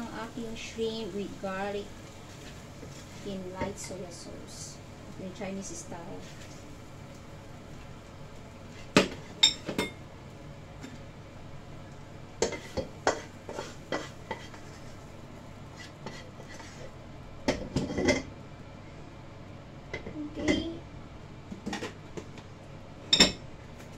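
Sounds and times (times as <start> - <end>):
spatula knocking and scraping wok: 8.7 - 10.0, 12.4 - 15.0, 15.8 - 18.3, 21.5 - 22.4.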